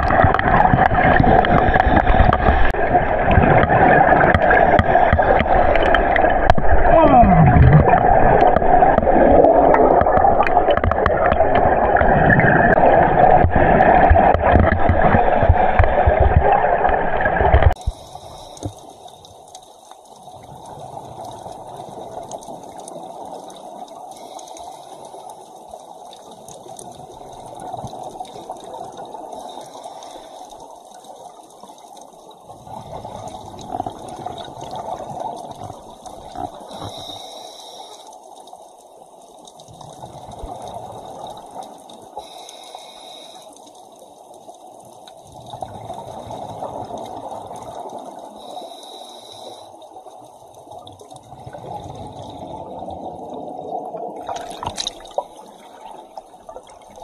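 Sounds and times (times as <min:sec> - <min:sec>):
exhaled bubbles rushing: 0:00.0 - 0:18.2, 0:50.8 - 0:57.0
regulator hissing inhale: 0:17.8 - 0:19.2, 0:24.1 - 0:25.3, 0:29.4 - 0:30.7, 0:36.7 - 0:38.2, 0:42.2 - 0:43.8, 0:48.3 - 0:50.2.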